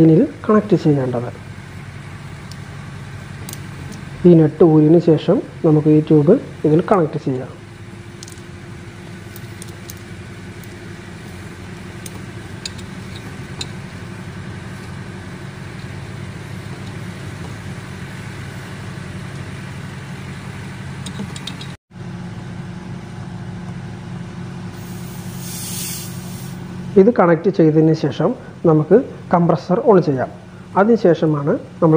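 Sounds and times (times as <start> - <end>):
low mechanical hum: 0.0 - 31.9
light metallic clicks and taps: 12.0 - 13.8, 21.0 - 21.8.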